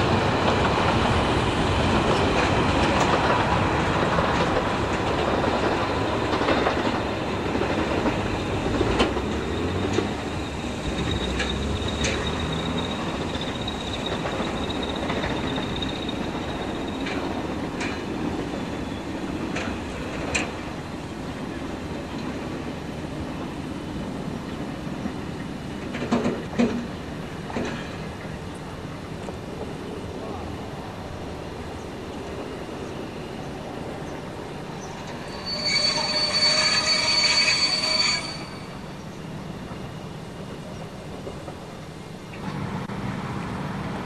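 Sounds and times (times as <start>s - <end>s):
train wheels rumbling on rails: 0.0s - 44.0s
high wheel squeal: 8.2s - 17.3s, 34.8s - 39.1s.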